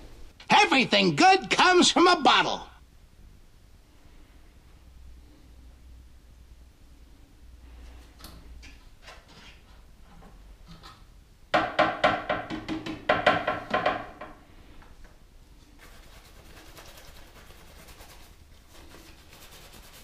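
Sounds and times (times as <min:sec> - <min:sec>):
soft steady hiss: 0:00.0 - 0:20.0
board knocking against plastic jar: 0:11.6 - 0:14.4.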